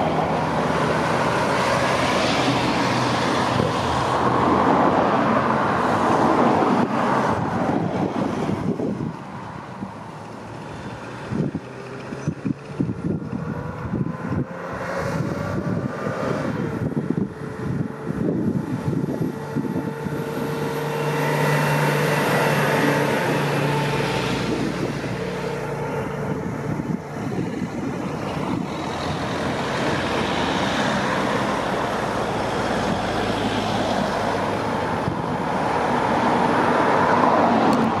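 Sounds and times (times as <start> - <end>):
cars passing: 0.0 - 38.0
fire engine passing: 0.0 - 38.0
motorcycle passing: 10.1 - 38.0.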